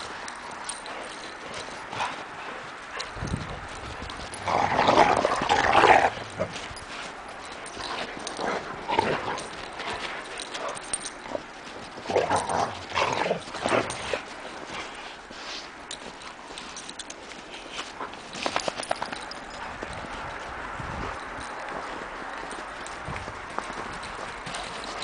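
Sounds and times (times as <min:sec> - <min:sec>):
dogs vocalizing during play: 0:00.0 - 0:03.2, 0:04.1 - 0:20.4.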